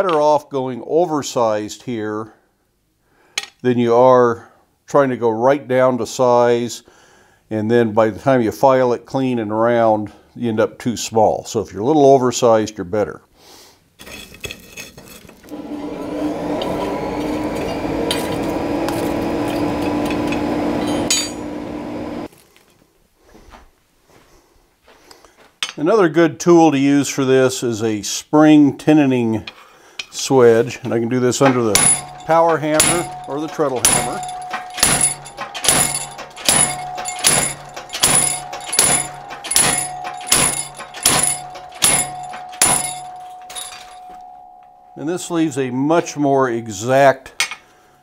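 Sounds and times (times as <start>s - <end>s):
electric air blower humming: 15.5s - 22.3s
hammer clanging on metal: 17.3s - 21.6s, 30.8s - 45.1s
metal tongs clinking in coals: 31.5s - 44.4s.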